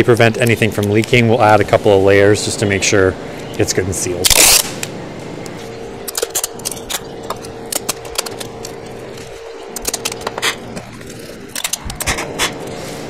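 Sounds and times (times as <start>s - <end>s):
tape ripping off roll: 4.2s - 4.8s.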